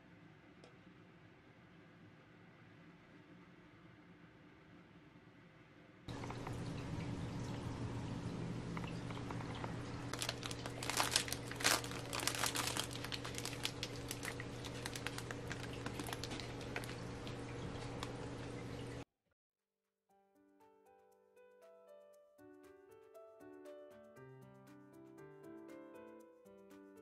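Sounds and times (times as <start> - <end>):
steady low hum: 6.1 - 19.0
plastic packaging crinkling: 9.4 - 18.4.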